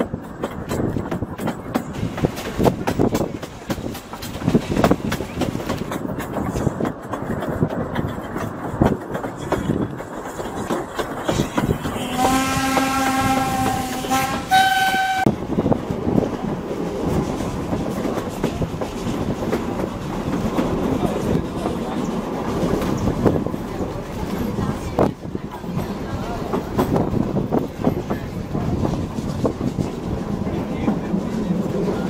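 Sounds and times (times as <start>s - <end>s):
train wheels clattering on rails: 0.0s - 32.0s
steam locomotive whistle: 12.0s - 15.3s.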